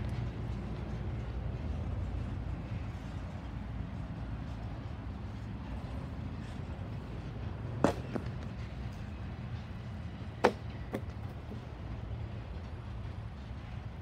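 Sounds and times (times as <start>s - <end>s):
freight train rumbling past: 0.0s - 14.0s.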